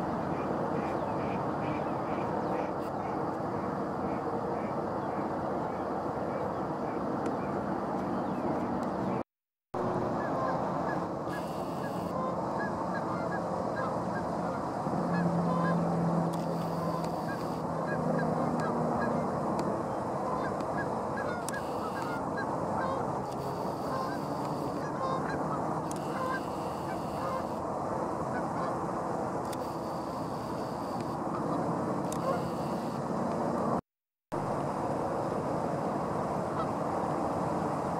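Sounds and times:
geese honking: 0:10.0 - 0:27.6, 0:29.6 - 0:33.0.

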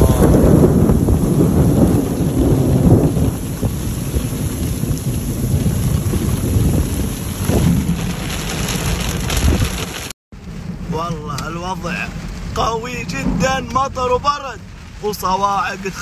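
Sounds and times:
deep low rumble: 0:00.0 - 0:15.0
heavy rain and hail: 0:00.0 - 0:16.0.

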